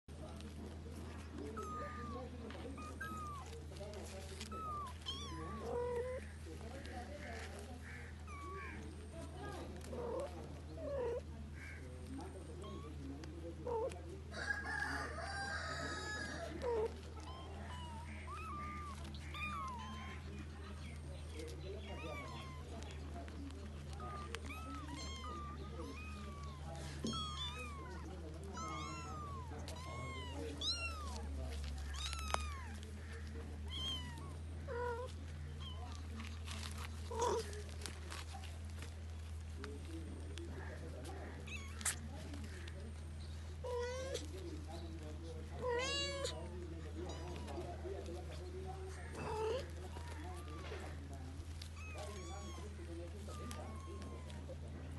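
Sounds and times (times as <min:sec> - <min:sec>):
kittens mewing: 0:00.4 - 0:54.9
cat meowing: 0:01.5 - 0:03.6, 0:04.3 - 0:06.4, 0:15.3 - 0:20.2, 0:23.8 - 0:37.6, 0:41.4 - 0:42.0, 0:45.6 - 0:46.4, 0:51.6 - 0:54.6
rooster crowing: 0:14.3 - 0:16.5
kitten mewing: 0:23.7 - 0:31.2.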